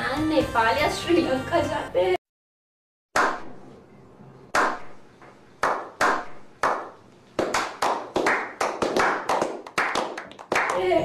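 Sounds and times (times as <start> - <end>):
men clapping: 5.6 - 11.0.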